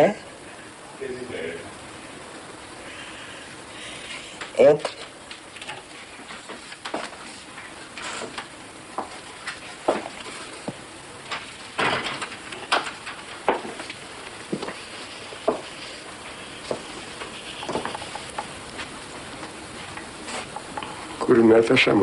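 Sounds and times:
steady hiss: 0.0s - 22.0s.

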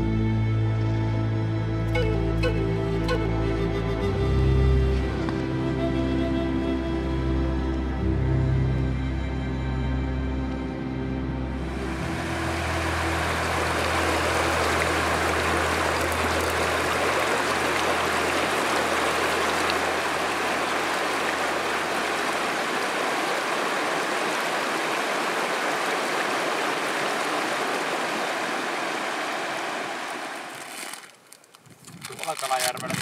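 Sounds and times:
river rushing over stones: 11.7s - 31.2s.

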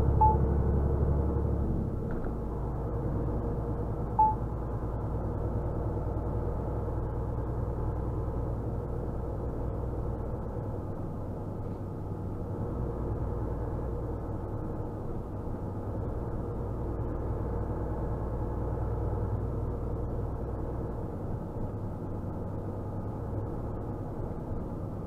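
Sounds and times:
lorry engine running: 0.0s - 25.0s
road noise: 0.0s - 25.0s
short beep: 0.2s - 0.4s, 4.2s - 4.4s.

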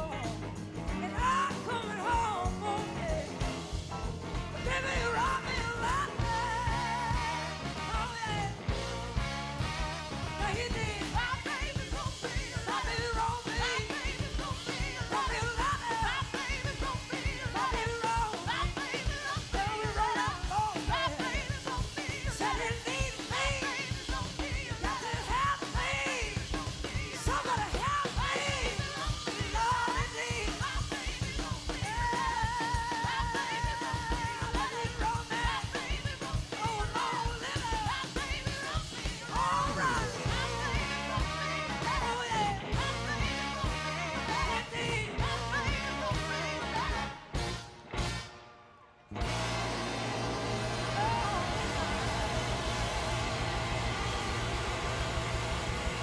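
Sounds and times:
woman singing: 0.0s - 3.4s, 4.6s - 8.6s, 10.4s - 47.3s
live blues-rock band: 0.0s - 48.4s, 49.1s - 56.0s.

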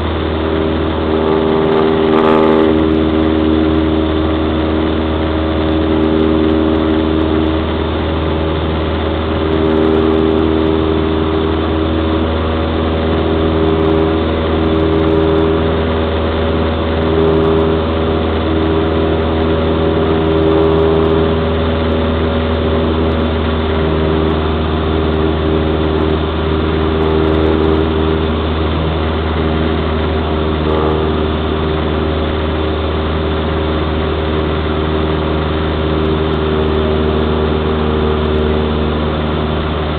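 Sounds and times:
propeller plane engine droning: 0.0s - 39.9s.

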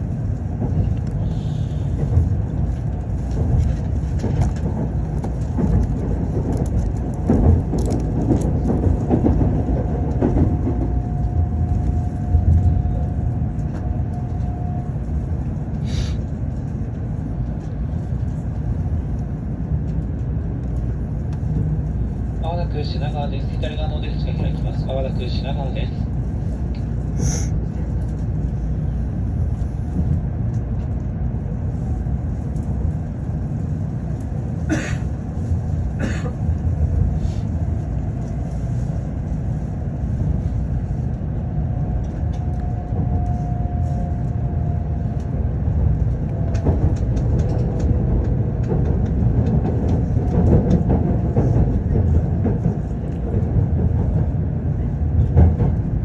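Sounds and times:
train rumbling on track: 0.0s - 56.0s.

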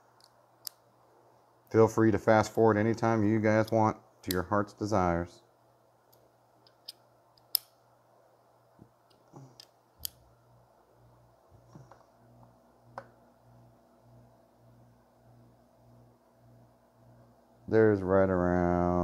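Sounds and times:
small metal tool clicks: 6.7s - 7.7s.

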